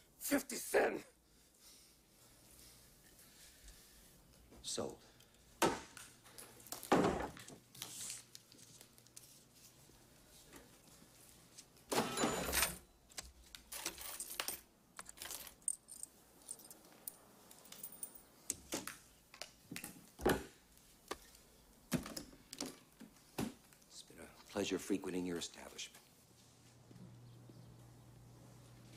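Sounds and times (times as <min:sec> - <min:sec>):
coins jingling on counter: 0:13.7 - 0:18.3.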